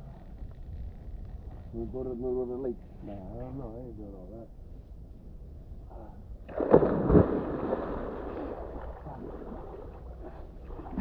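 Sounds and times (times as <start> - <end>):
churning water: 6.5 - 11.0
heavy water splash: 6.5 - 11.0.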